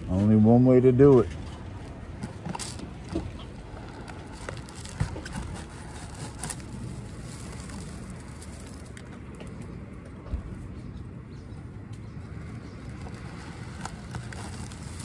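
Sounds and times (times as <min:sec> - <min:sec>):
twigs scratching and crackling: 0:01.8 - 0:09.8, 0:12.0 - 0:15.0.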